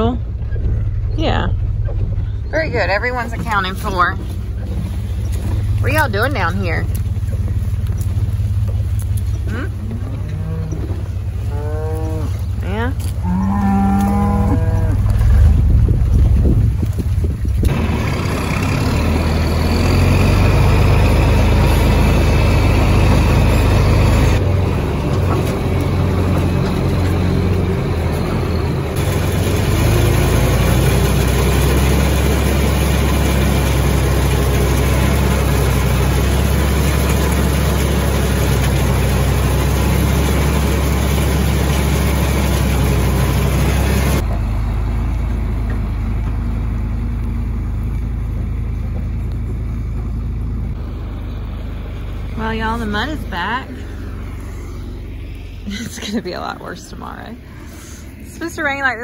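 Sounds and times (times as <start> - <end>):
tractor engine running: 0.0 - 59.0
feed wagon machinery: 0.1 - 59.0.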